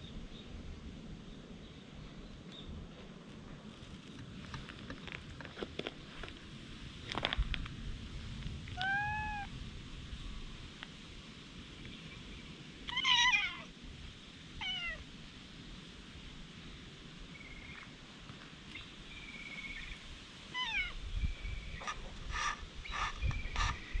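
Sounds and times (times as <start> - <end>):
cat meowing: 8.8 - 9.5, 12.9 - 13.7, 14.6 - 15.0.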